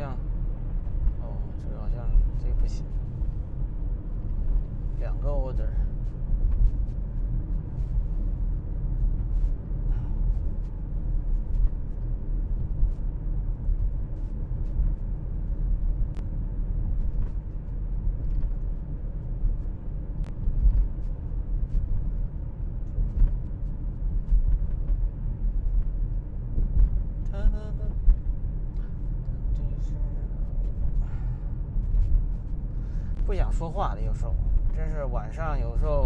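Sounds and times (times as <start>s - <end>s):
car driving interior rumble: 0.0s - 36.0s.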